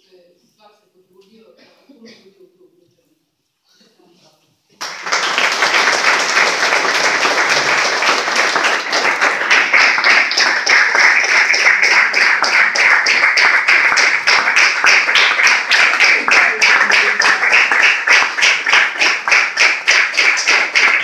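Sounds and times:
audience clapping: 0:04.8 - 0:21.0.

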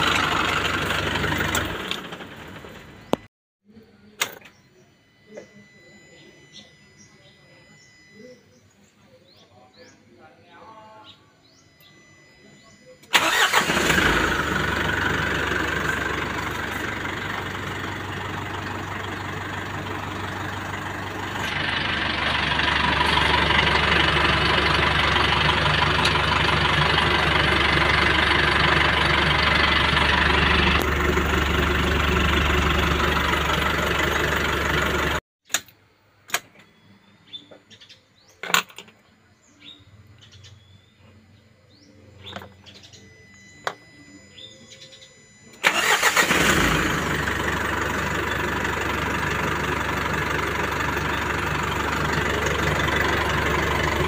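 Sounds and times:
diesel engine idling: 0:00.0 - 0:03.3, 0:13.0 - 0:35.2, 0:39.7 - 0:54.0
birds chirping: 0:00.0 - 0:35.2, 0:36.4 - 0:54.0.

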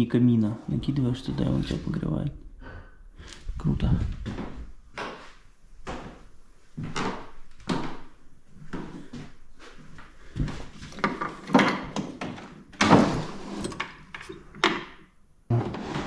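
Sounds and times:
wooden knocks and scrapes: 0:10.4 - 0:16.0.

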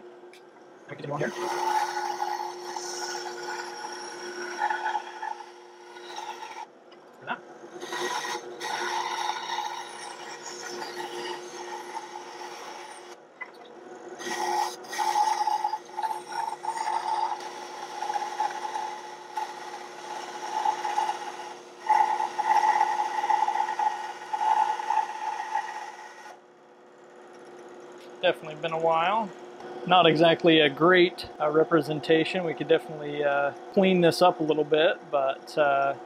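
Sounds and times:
band saw humming: 0:00.0 - 0:13.2, 0:13.8 - 0:26.4, 0:27.0 - 0:36.0
saw blade rasping through wood: 0:01.2 - 0:06.7, 0:07.8 - 0:13.2, 0:14.2 - 0:26.4.

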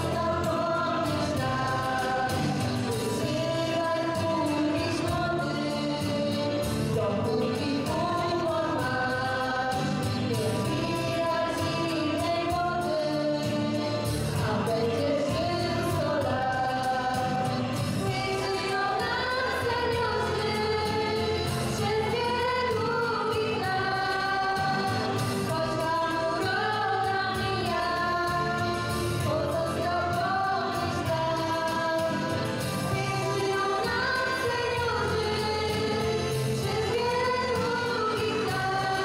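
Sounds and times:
instrumental accompaniment: 0:00.0 - 0:39.0
women singing: 0:00.0 - 0:39.0.

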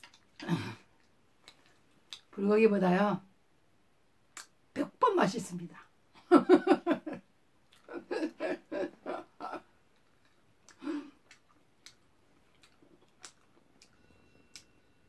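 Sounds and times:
person laughing: 0:06.3 - 0:07.2, 0:07.8 - 0:09.7.

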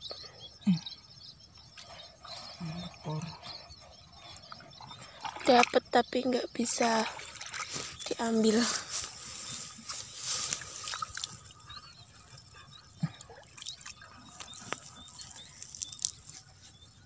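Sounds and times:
muddy water sloshing: 0:01.6 - 0:17.0
sharp drips: 0:10.3 - 0:11.7.

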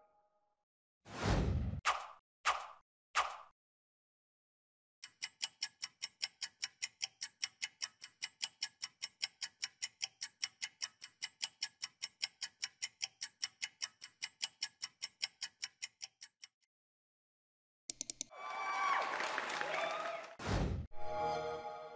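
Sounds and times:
rapid clock ticks: 0:05.0 - 0:16.7, 0:17.9 - 0:18.3.

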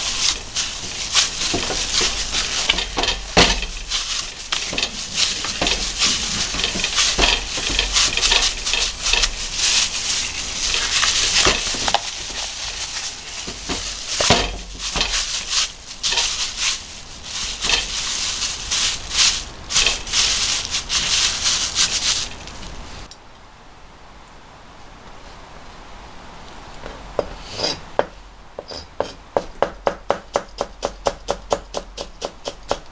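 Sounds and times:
plastic film crinkling: 0:00.0 - 0:23.1.

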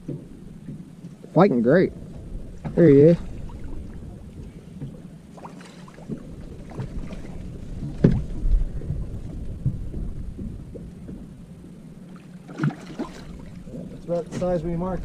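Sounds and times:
wind rumbling on microphone: 0:00.0 - 0:15.0
water slapping against boat hull: 0:02.1 - 0:15.0
small knocks: 0:07.8 - 0:08.4.

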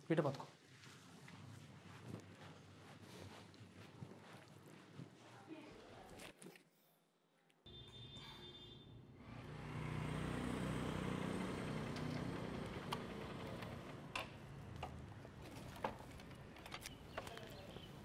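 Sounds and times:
vehicle engine running: 0:09.3 - 0:14.0.

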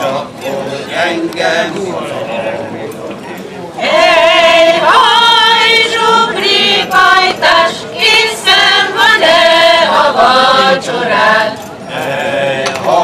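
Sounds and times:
choir singing a folk song: 0:03.8 - 0:13.0.

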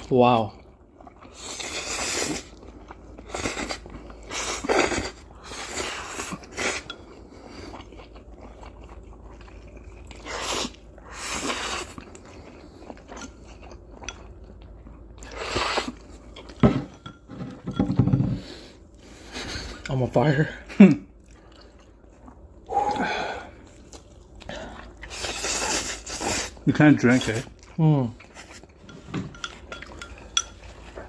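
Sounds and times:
quiet chewing: 0:00.5 - 0:16.6, 0:21.0 - 0:26.6
noodle slurping: 0:24.6 - 0:26.6.

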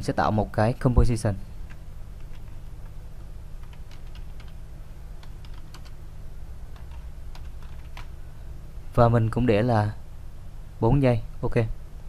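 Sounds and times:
low steady hum: 0:00.0 - 0:12.0
keyboard typing clicks: 0:03.6 - 0:04.6, 0:05.2 - 0:06.0, 0:06.7 - 0:08.1.

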